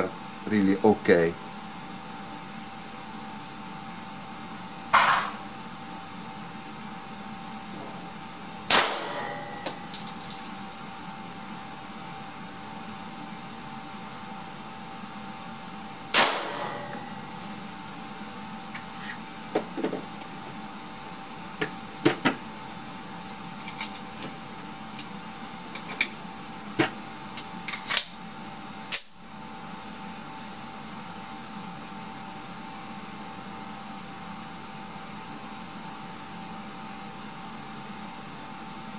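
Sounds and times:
steady hum: 0:00.0 - 0:35.6
pistol shot: 0:08.7 - 0:09.3, 0:16.1 - 0:16.7.

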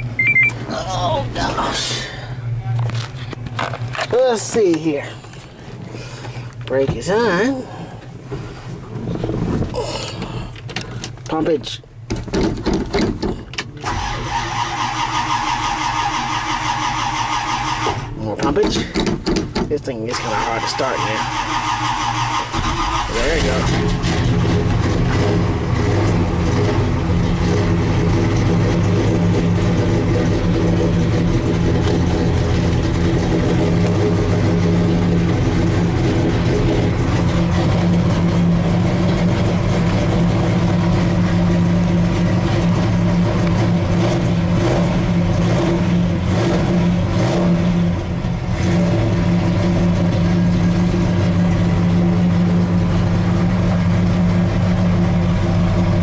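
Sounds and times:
pickup engine fast idle: 0:20.1 - 0:43.9.

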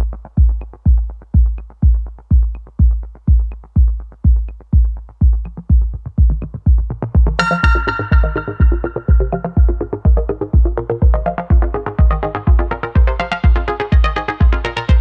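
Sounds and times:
electronic music with kick drum: 0:00.0 - 0:15.0
bright synth chord: 0:07.4 - 0:10.3.

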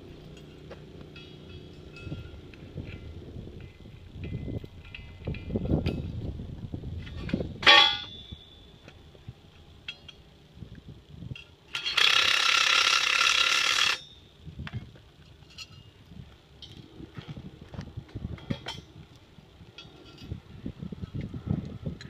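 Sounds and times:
loud mechanical buzz: 0:00.0 - 0:14.7
metal grate clanking: 0:07.0 - 0:08.4.

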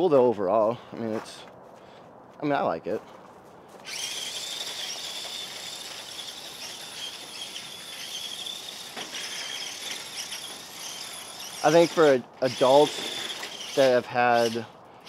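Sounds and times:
tracks grinding on gravel: 0:00.0 - 0:15.0
electric motor whine: 0:03.8 - 0:14.6.

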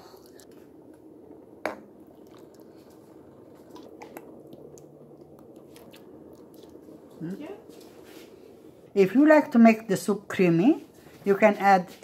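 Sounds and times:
thick soup squishing: 0:02.0 - 0:08.5.

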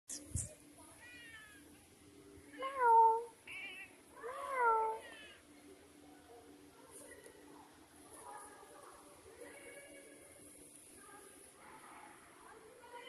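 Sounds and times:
cats meowing: 0:00.1 - 0:01.7, 0:02.5 - 0:05.4.

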